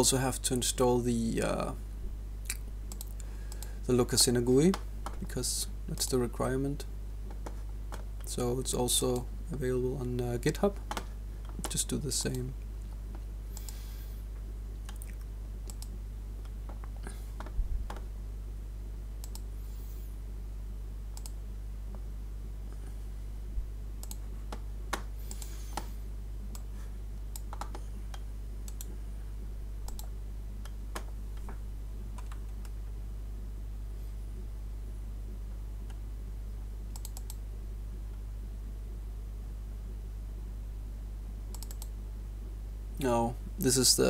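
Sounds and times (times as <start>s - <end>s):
steady low hum: 0.0s - 44.0s
computer mouse clicks: 2.5s - 3.7s, 13.5s - 13.8s, 14.9s - 15.9s, 19.2s - 19.5s, 21.1s - 21.4s, 24.0s - 25.9s, 27.3s - 28.9s, 29.9s - 31.6s, 36.9s - 37.4s, 41.5s - 41.9s.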